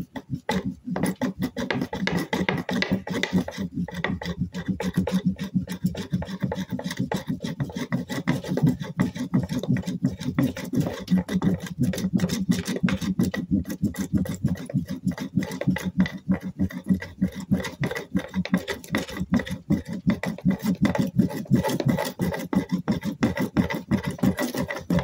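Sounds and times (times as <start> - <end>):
wood rasping on wood: 0.0 - 25.0.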